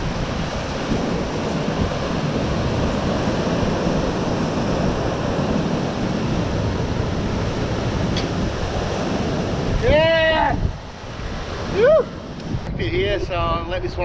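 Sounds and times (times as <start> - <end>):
surf washing over rocks: 0.0 - 14.0
wind buffeting microphone: 0.0 - 14.0.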